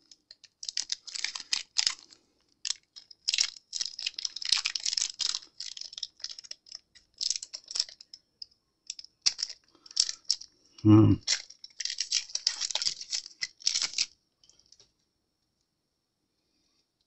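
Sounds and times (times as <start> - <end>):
foil wrapper crinkling and tearing: 0.3 - 8.0, 11.3 - 14.1.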